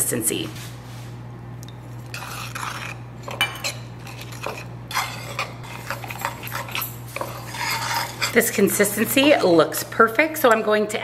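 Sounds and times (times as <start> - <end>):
low steady hum: 0.0 - 11.0
spoon scraping ceramic bowl: 1.7 - 9.5.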